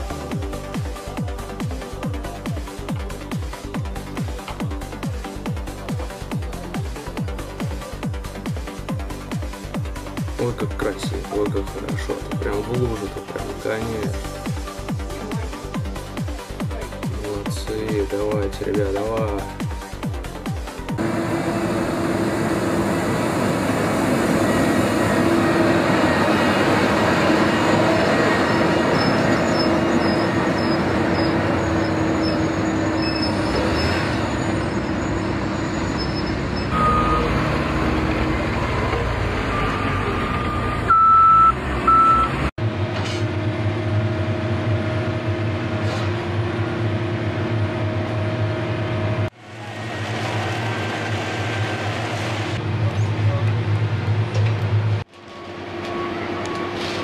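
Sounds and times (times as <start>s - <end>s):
diesel engine running: 0.0s - 57.0s
heavy machine engine drone: 20.9s - 57.0s
reversing beeps: 35.5s - 37.6s, 38.6s - 42.4s.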